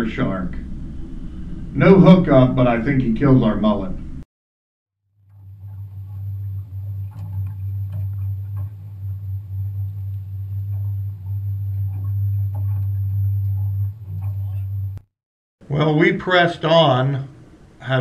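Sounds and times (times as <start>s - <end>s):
outboard motor idling: 5.3s - 15.0s.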